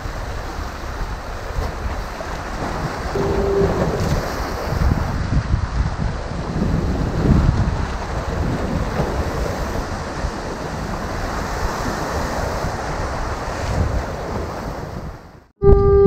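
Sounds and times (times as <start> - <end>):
surf breaking over rocks: 0.0 - 15.0
wind buffeting microphone: 0.0 - 16.0
loud steady tone: 3.2 - 4.4, 15.6 - 16.0.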